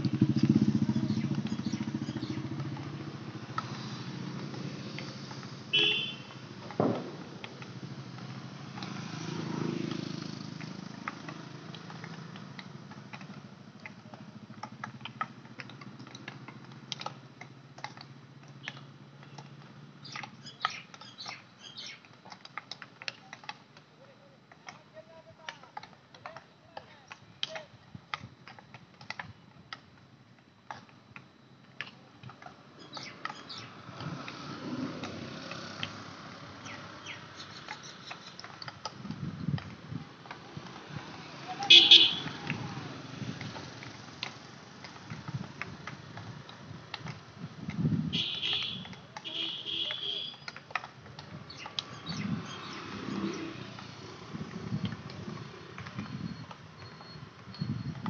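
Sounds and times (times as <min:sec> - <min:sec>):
vehicle humming past: 0:00.0 - 0:13.7, 0:33.0 - 0:38.1, 0:51.5 - 0:55.8
hockey sticks striking balls: 0:00.0 - 0:23.9, 0:30.7 - 0:57.1.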